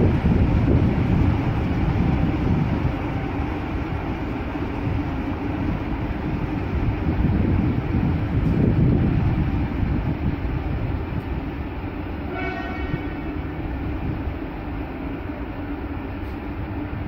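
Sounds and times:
electric locomotive rumbling: 0.0 - 17.0
train horn blast: 12.2 - 13.4.

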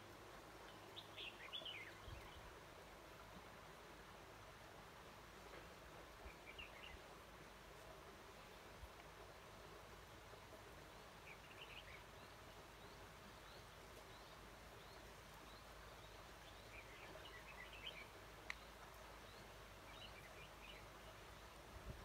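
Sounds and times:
background hiss: 0.0 - 22.0
faint bird chirping: 0.5 - 2.7, 6.1 - 7.2, 7.8 - 22.0.

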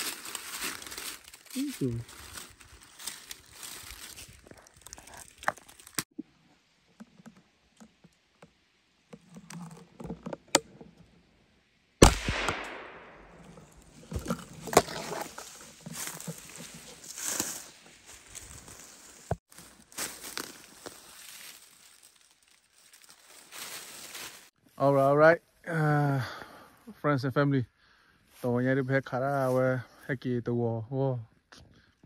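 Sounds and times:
gunshot with echo: 12.0 - 13.5
faint rustles and clicks: 13.5 - 24.5.

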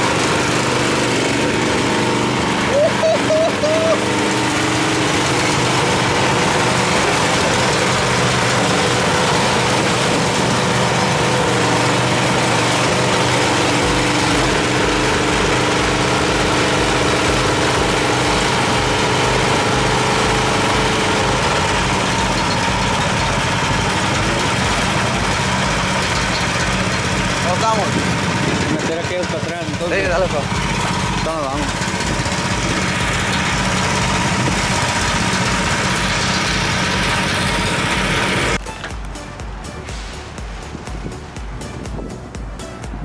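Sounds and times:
mini excavator engine running: 0.0 - 43.0
deep pulsing rumble: 4.5 - 38.6.

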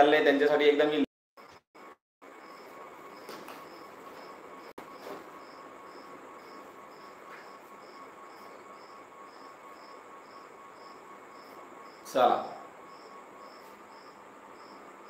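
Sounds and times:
cricket chirping: 2.2 - 15.0.

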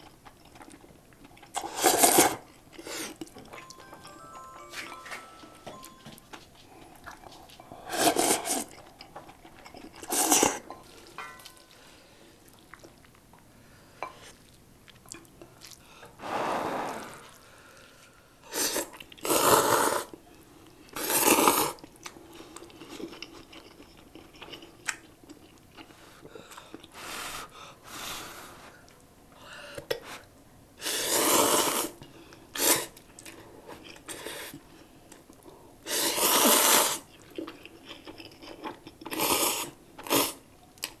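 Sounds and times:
chewing: 0.0 - 3.7, 6.6 - 13.5, 14.1 - 15.8, 21.8 - 26.9, 33.0 - 35.5, 37.0 - 41.0
slurping noodles: 1.5 - 3.2, 7.9 - 8.8, 10.0 - 10.6, 30.8 - 32.0, 35.9 - 37.1.

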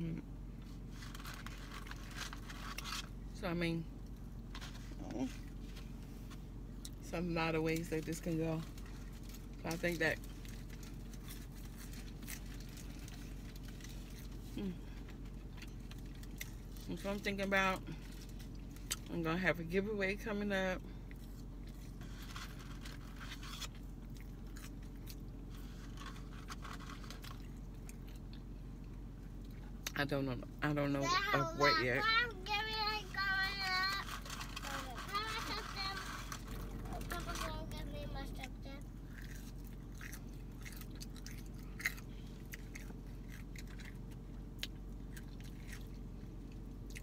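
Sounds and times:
steady low hum: 0.0 - 47.0
person chewing crunchy fries: 0.6 - 3.2, 8.6 - 16.9, 17.8 - 19.1, 21.0 - 29.9, 33.4 - 37.5, 38.2 - 47.0.

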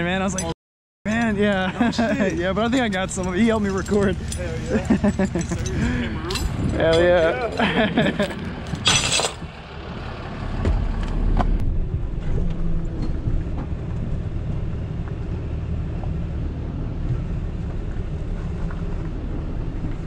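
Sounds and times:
truck engine rumbling: 0.0 - 20.0.

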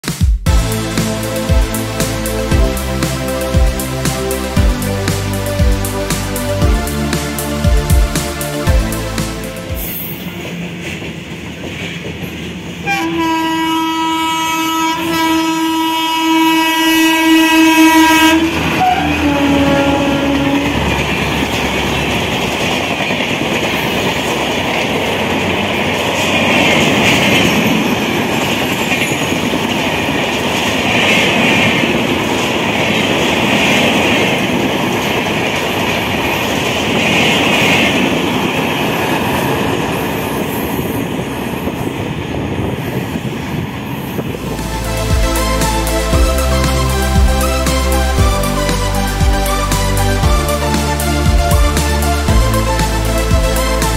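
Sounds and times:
train rushing and clattering: 0.0 - 53.9
locomotive horn: 12.8 - 21.6.

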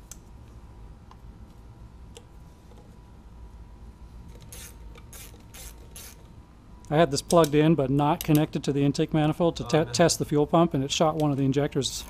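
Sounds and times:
small clicks and handling noises: 8.2 - 8.5.

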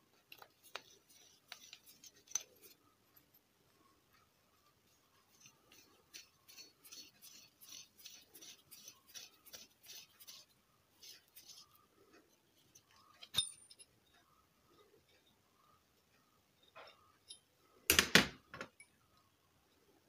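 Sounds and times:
quick rasping strokes on metal: 0.7 - 2.8, 5.2 - 12.9
metallic clink: 12.8 - 14.0.

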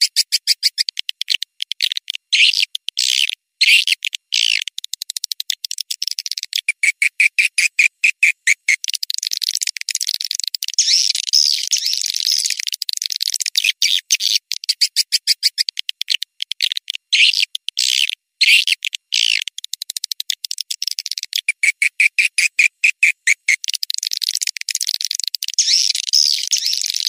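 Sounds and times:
short bird chirps: 0.0 - 1.0, 10.8 - 12.7, 25.6 - 27.0.

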